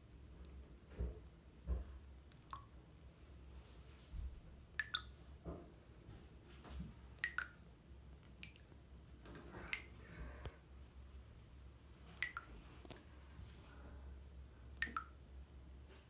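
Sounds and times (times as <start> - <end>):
water drips and plinks: 0.4 - 2.8, 4.2 - 5.6, 7.1 - 10.4, 12.1 - 13.8, 14.8 - 15.3.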